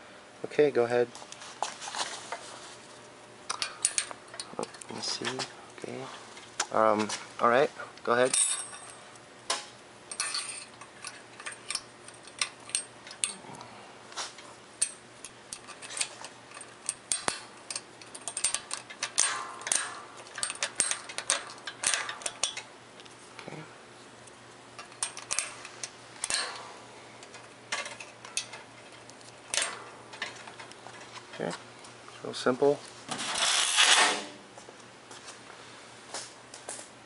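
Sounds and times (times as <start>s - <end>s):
light metal clicks and clinks: 10.1s - 13.4s, 14.8s - 22.7s.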